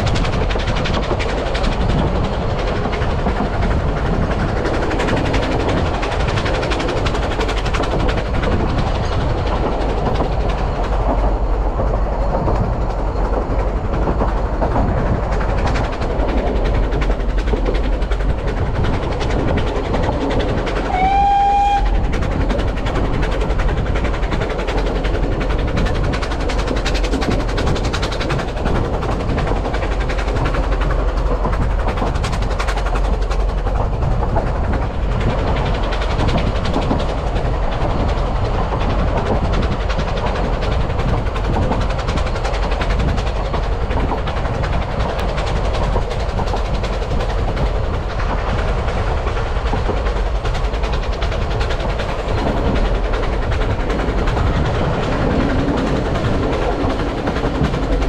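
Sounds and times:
train wheels rumbling on rails: 0.0 - 58.0
fast irregular wheel clicking: 21.8 - 58.0.

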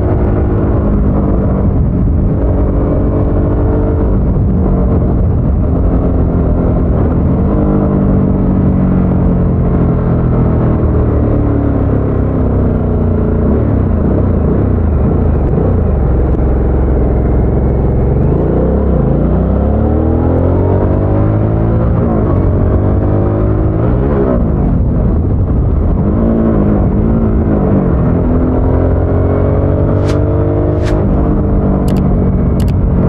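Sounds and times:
motorcycle engine revving: 28.4 - 32.7.

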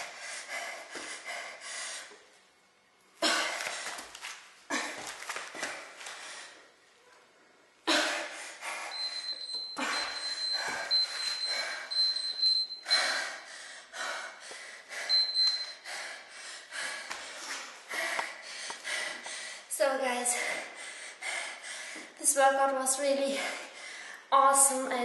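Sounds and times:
woman panting: 0.0 - 2.2, 7.9 - 22.2, 23.2 - 24.3.

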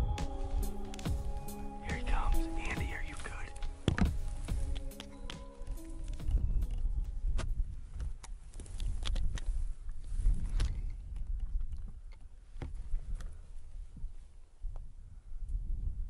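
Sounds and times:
rustling through dry grass: 0.0 - 11.0
wind rumbling on microphone: 0.0 - 16.0.

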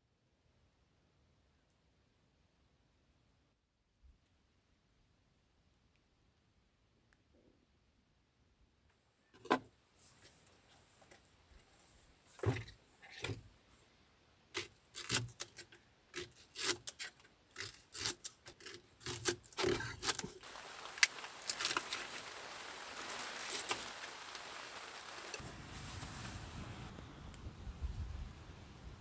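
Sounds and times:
crackling scrape with ticks: 14.5 - 26.9.

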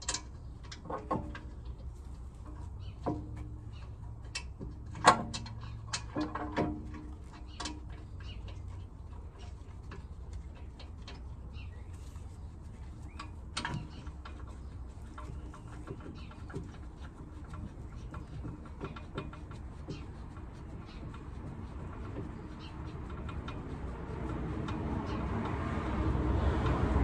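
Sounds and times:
metallic clicks and knocks: 0.0 - 11.5
bird calling: 11.4 - 24.0.

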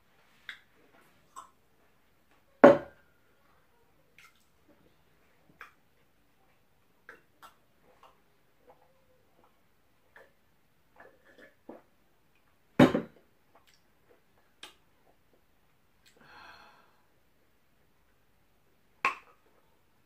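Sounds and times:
glass knocked down on a table: 2.6 - 3.0, 12.8 - 13.2
breathy exhale: 16.2 - 17.0.

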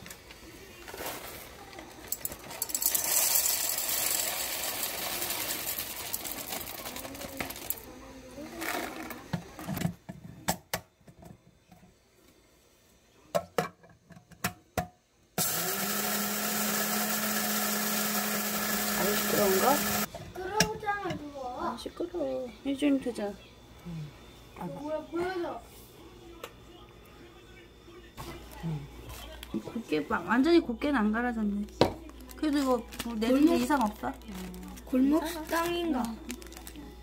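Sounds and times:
coffee grinder whirring: 2.0 - 9.4, 15.4 - 20.1.

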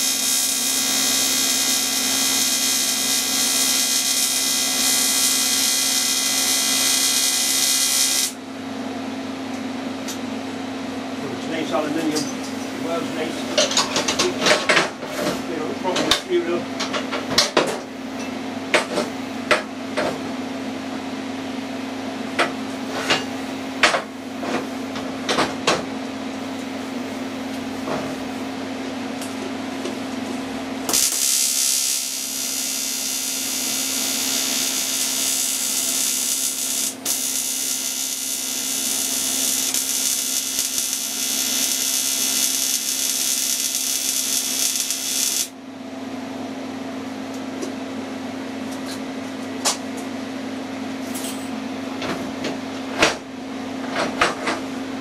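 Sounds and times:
welding arc hissing: 0.0 - 8.4, 30.9 - 45.6.

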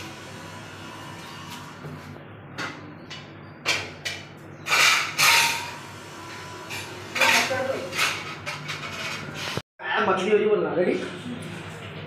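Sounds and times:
steel cookware clattering: 7.2 - 9.3.

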